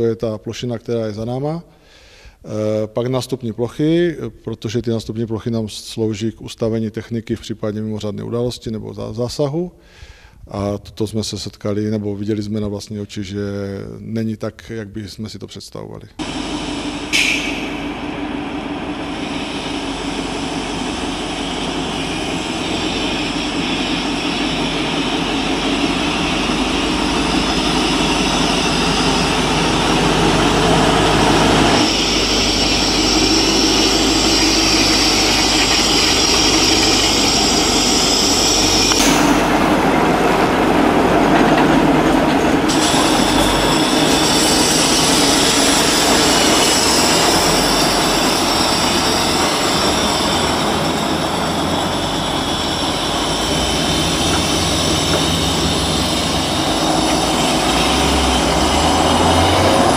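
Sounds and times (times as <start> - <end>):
heavy diesel truck engine: 16.2 - 59.9.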